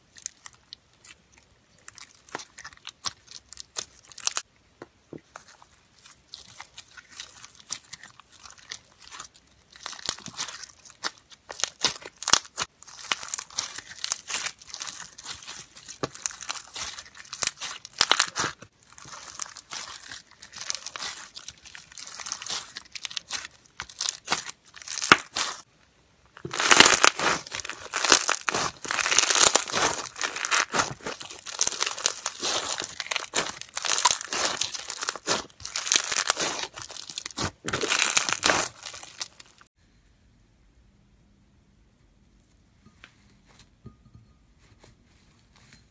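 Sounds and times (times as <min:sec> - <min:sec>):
foam-bead slime crackling: 0:01.8 - 0:04.5, 0:05.3 - 0:25.7, 0:26.4 - 0:39.7.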